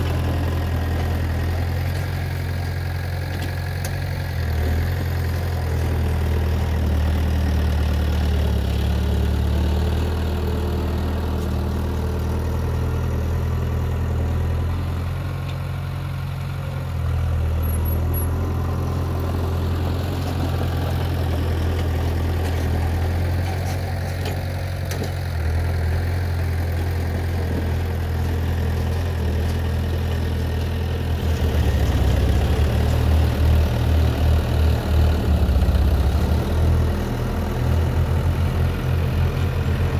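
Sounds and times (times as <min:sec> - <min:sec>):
heavy diesel engine running: 0:00.0 - 0:39.9.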